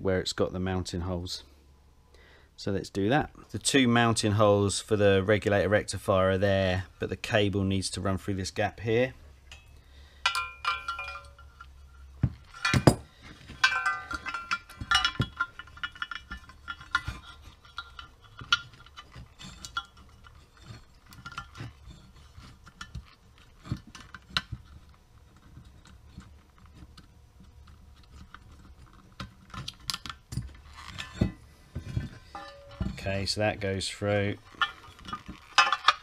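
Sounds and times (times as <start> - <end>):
metal parts clinking: 9.5 - 33.4, 34.3 - 36.0.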